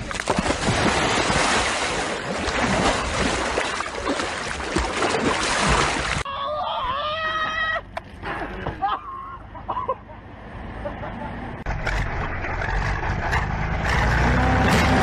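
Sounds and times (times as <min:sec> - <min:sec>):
floodwater rushing and splashing: 0:00.0 - 0:06.3.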